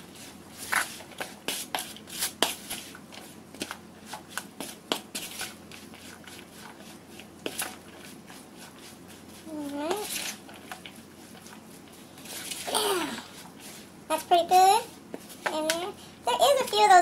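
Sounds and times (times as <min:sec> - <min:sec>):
wooden spoon scraping in bowl: 0:05.2 - 0:15.5.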